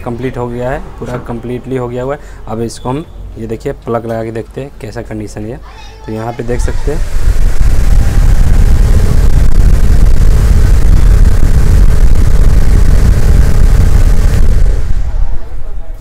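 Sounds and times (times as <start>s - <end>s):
fan motor hum: 0.0s - 16.0s
fan draught on microphone: 6.3s - 16.0s.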